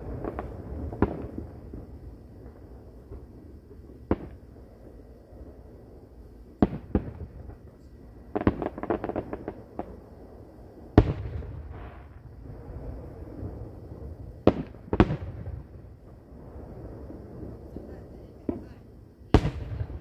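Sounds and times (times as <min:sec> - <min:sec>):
crackling firework pops: 0:00.0 - 0:04.6, 0:06.6 - 0:10.1, 0:10.9 - 0:12.7, 0:13.3 - 0:16.3, 0:18.4 - 0:20.0
firework bangs: 0:00.0 - 0:05.6, 0:06.6 - 0:20.0.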